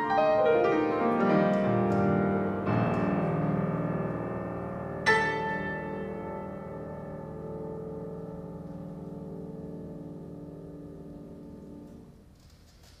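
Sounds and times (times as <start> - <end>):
grand piano chord ringing: 0.0 - 12.2.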